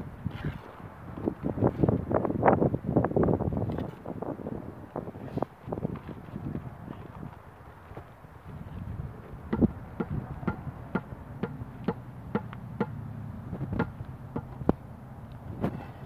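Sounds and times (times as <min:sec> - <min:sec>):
footsteps on dirt: 0:05.2 - 0:09.4.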